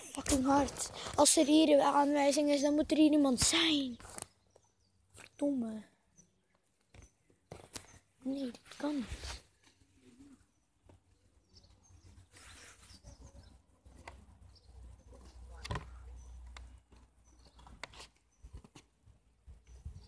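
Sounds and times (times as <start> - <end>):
faint bird chirps: 3.6 - 16.6.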